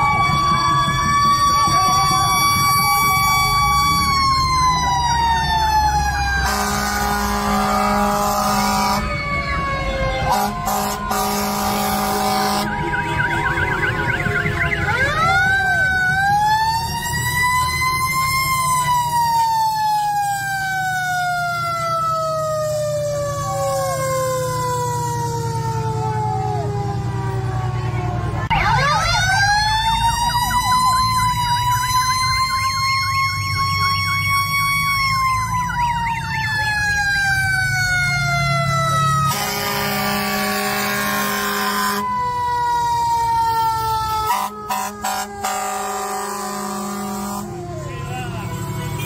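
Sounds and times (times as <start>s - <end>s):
fire engine siren wailing: 0.0s - 49.0s
horn blasts: 6.4s - 9.2s, 10.2s - 13.2s, 39.2s - 42.0s, 44.2s - 47.7s.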